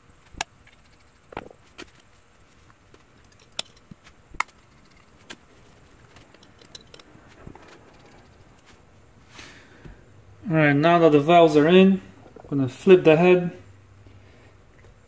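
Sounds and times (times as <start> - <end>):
metal parts clicking: 3.1 - 8.7.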